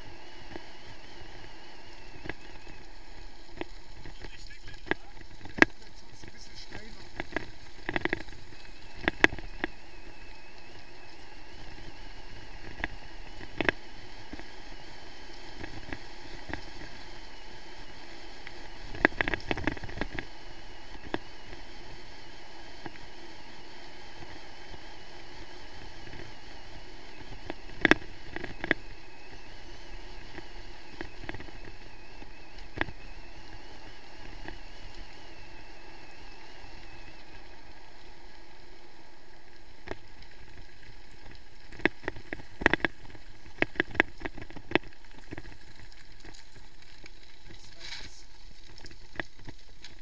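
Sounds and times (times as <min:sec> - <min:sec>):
bike rolling on gravel: 0:00.0 - 0:50.0.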